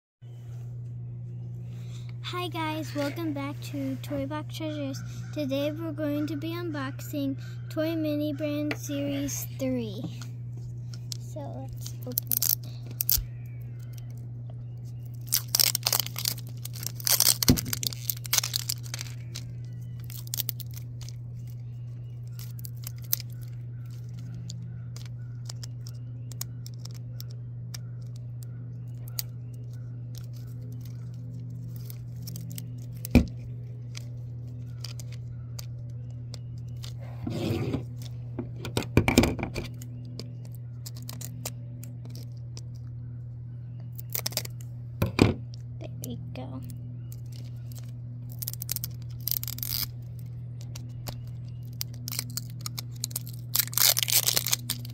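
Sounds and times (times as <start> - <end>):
steady low hum: 0.2 - 54.9
small clicks and scrapes: 10.0 - 42.9
plastic wrapper tearing: 11.0 - 14.2, 14.8 - 37.0, 40.4 - 42.4, 44.0 - 44.6, 47.1 - 54.9.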